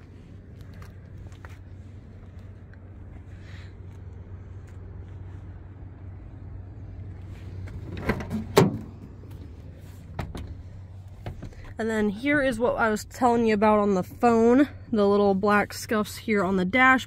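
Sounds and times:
steady low rumble: 0.0s - 17.0s
door clunk: 7.8s - 9.0s.

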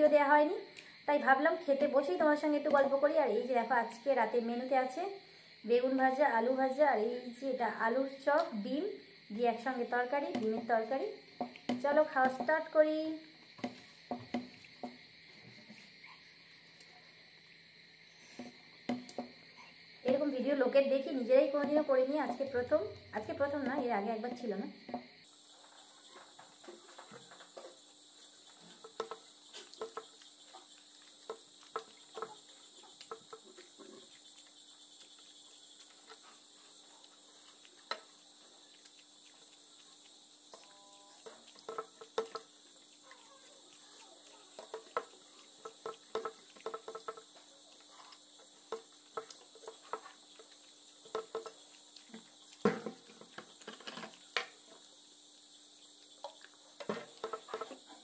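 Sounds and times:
crickets chirring: 0.0s - 58.0s
wet chewing and lip smacks: 29.6s - 52.6s.

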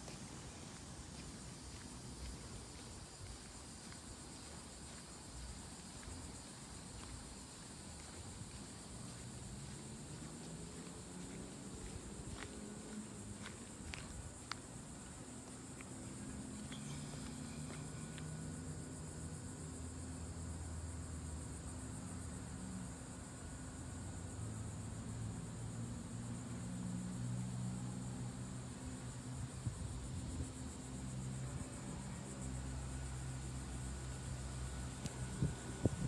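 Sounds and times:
insects chirping: 0.0s - 36.0s.

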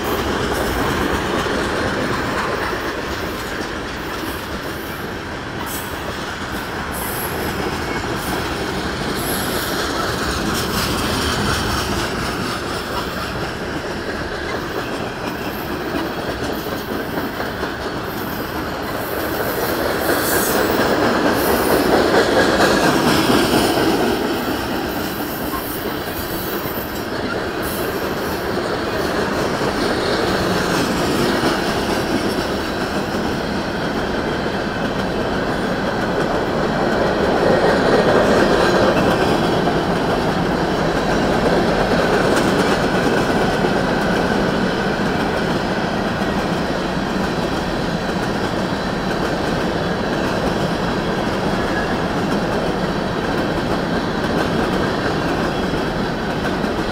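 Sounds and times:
freight train rolling past: 0.0s - 56.9s.

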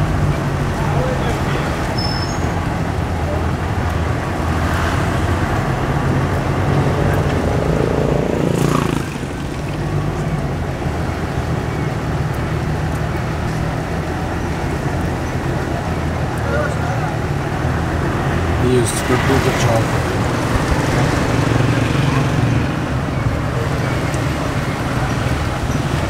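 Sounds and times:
road and traffic noise: 0.0s - 26.0s
rushing noise: 16.7s - 26.0s.

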